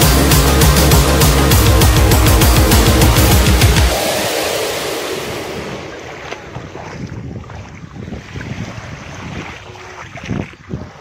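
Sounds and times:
wind buffeting microphone: 4.0s - 11.0s.

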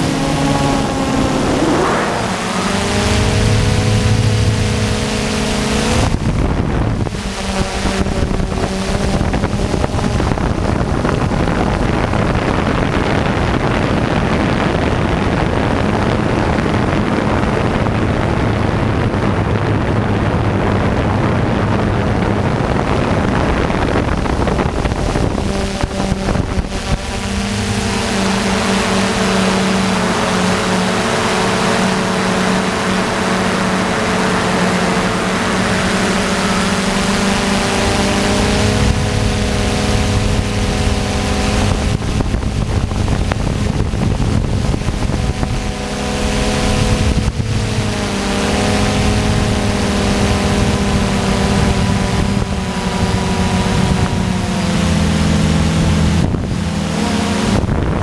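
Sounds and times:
drone motors humming: 0.0s - 58.0s
wind rushing over microphone: 0.0s - 58.0s.

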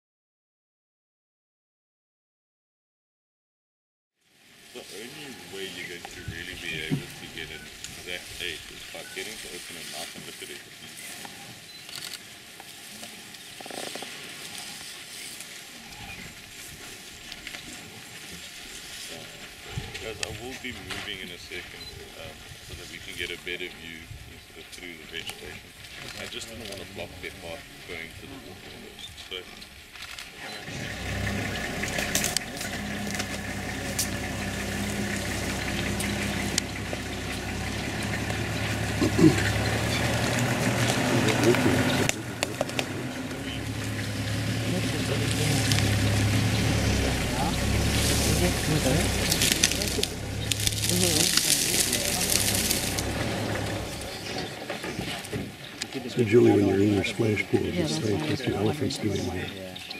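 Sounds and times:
steady hiss: 4.2s - 30.1s
low rumble: 30.7s - 54.6s.

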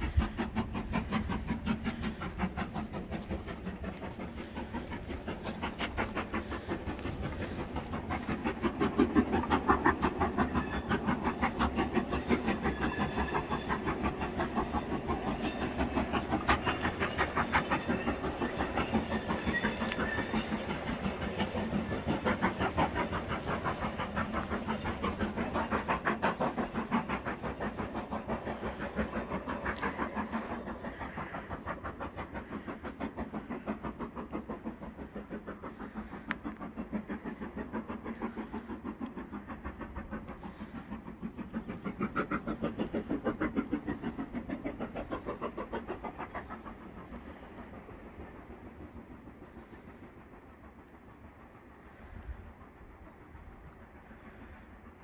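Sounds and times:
steam locomotive chuffing: 0.0s - 55.0s.

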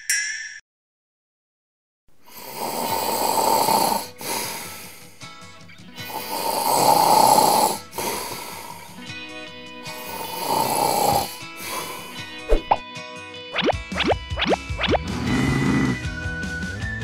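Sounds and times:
cartoon snoring: 2.3s - 5.0s, 6.0s - 9.0s, 9.9s - 12.8s, 14.4s - 16.2s
light music: 4.2s - 17.0s.

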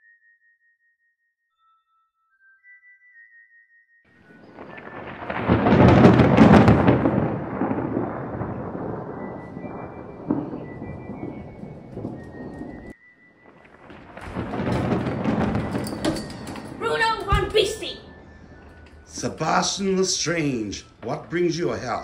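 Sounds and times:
thunder crack and rumble: 4.4s - 22.0s.

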